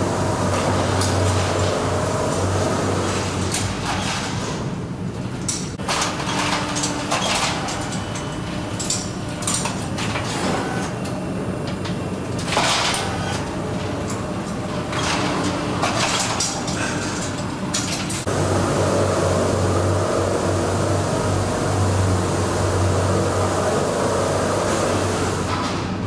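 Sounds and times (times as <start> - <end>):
metallic clanks and rattles: 11.7 - 18.3.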